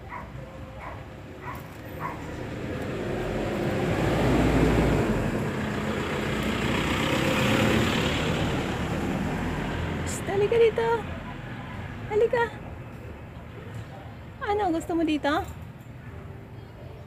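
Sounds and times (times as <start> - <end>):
vehicle passing by: 1.7 - 12.8.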